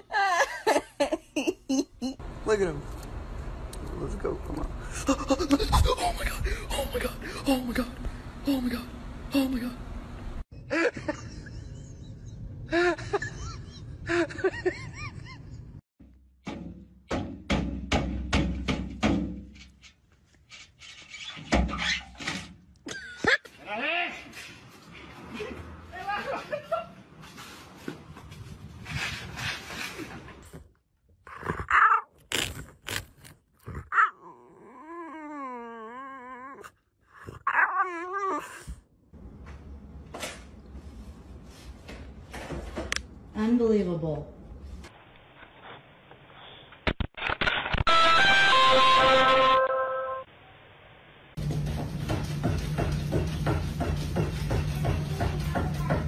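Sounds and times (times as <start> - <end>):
sharp hollow knocks in a tube: 16.0 - 19.6
dog whining: 31.3 - 32.2, 33.7 - 38.8.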